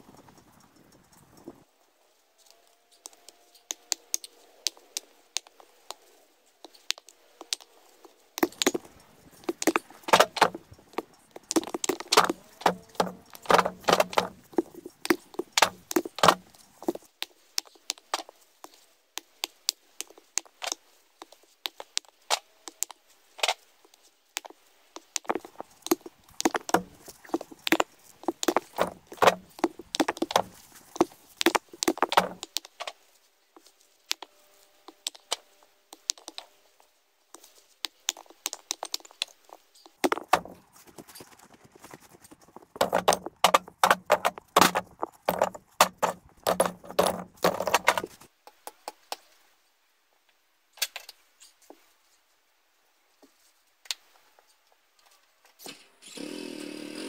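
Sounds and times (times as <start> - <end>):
rapid sharp clicks and knocks: 8.4 - 18.3, 24.4 - 32.9, 39.9 - 41.1, 41.7 - 49.0.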